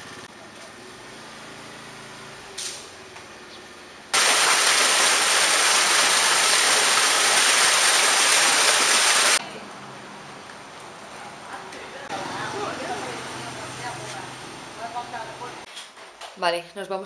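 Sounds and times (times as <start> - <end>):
waterfall splashing into pond: 4.2 - 9.4.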